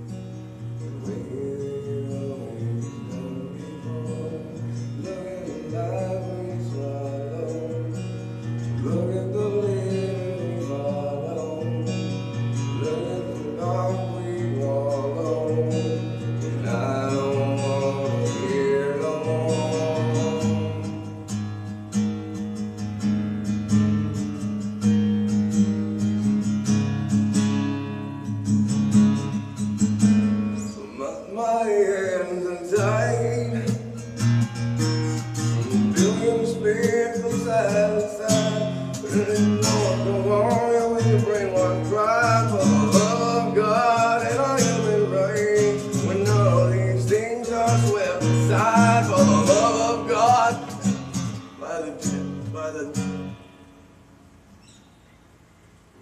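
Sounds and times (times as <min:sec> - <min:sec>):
acoustic guitar strumming: 0:00.0 - 0:56.0
man singing through effects: 0:00.7 - 0:21.4, 0:30.5 - 0:34.2, 0:35.4 - 0:53.4.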